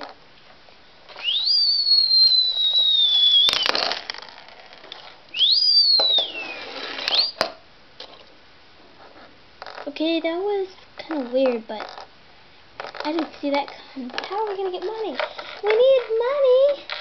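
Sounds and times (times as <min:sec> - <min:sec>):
mouth-whistled falling whistle: 0:01.2 - 0:04.0, 0:05.3 - 0:07.4
quick rising whistle: 0:01.2 - 0:04.0, 0:05.3 - 0:07.4.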